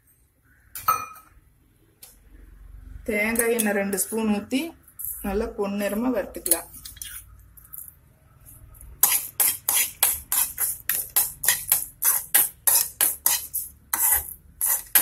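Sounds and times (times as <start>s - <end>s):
spoon scraping a pan: 6.4s - 7.3s, 8.9s - 15.0s.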